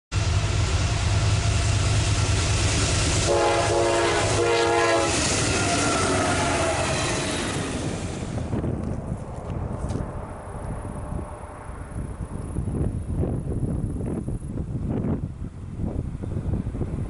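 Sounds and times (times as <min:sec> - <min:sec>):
train low rumble: 0:00.1 - 0:17.0
train air horn blasts: 0:03.1 - 0:07.3.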